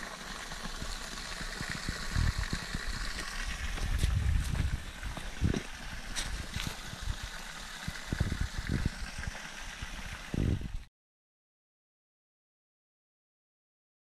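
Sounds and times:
stream water rushing: 0.0s - 10.8s
low thumps on microphone: 3.7s - 5.7s.

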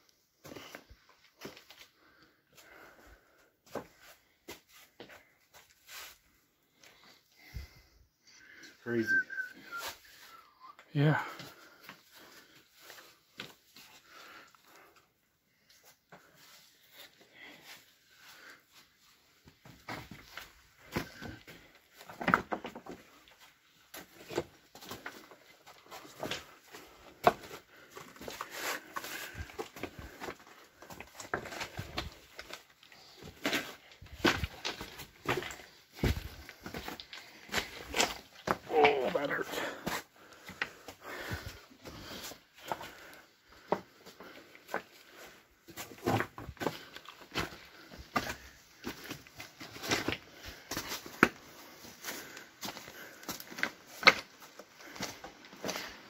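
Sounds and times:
footsteps crunching on rock rubble: 24.0s - 56.0s.

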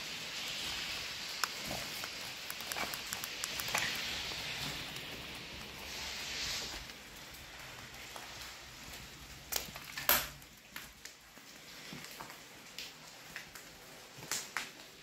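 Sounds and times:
sharp clicks: 1.4s - 4.1s.

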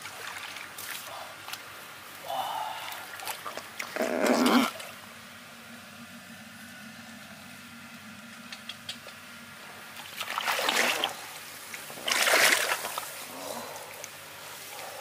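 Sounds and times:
water splashing: 0.0s - 1.7s, 2.7s - 5.0s, 9.9s - 13.2s.

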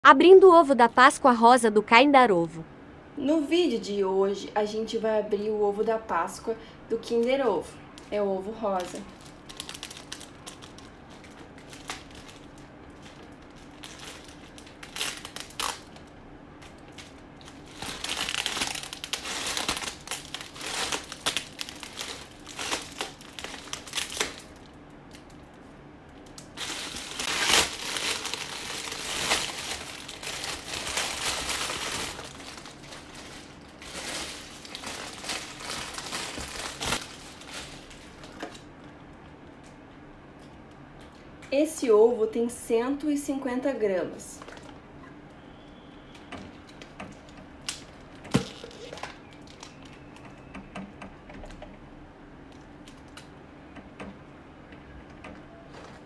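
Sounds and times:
foil wrapping crinkling: 8.0s - 38.7s, 46.1s - 50.5s.

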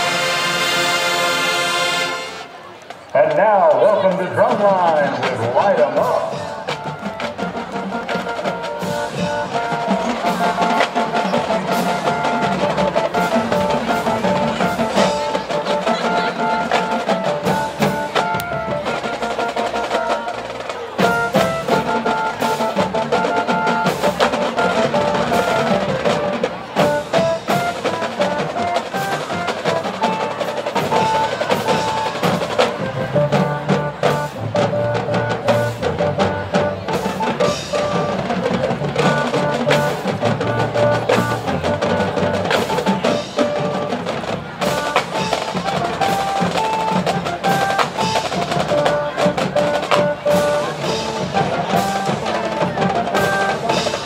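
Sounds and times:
pitched melodic percussion notes: 0.0s - 54.0s.

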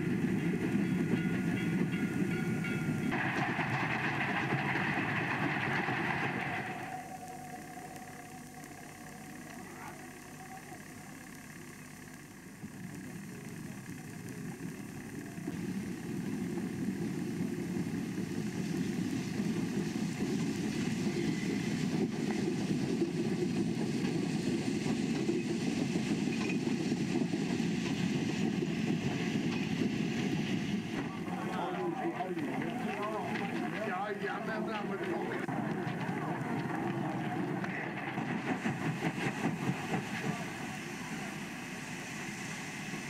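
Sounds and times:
steam train rumbling past: 0.0s - 9.9s, 15.5s - 43.0s.

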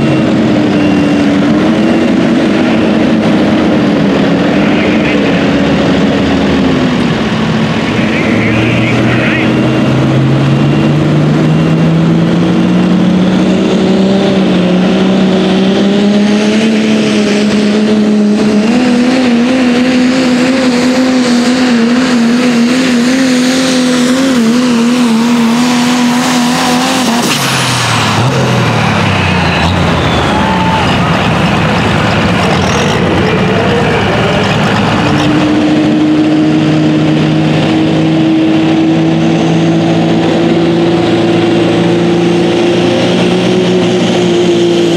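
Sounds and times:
diesel truck engine revving under load: 0.0s - 44.9s.

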